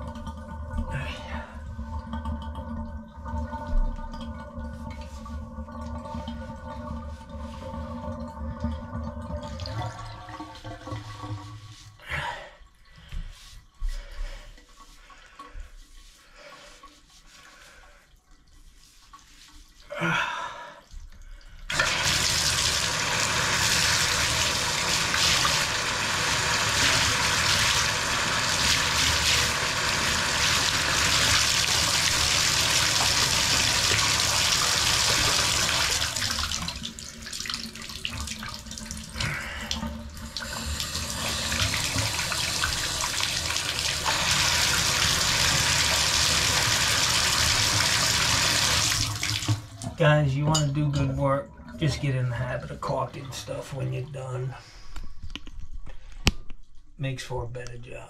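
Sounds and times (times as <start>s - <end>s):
water rushing from tap: 0.0s - 12.0s, 21.0s - 53.8s
shower valve opening: 21.7s - 52.8s.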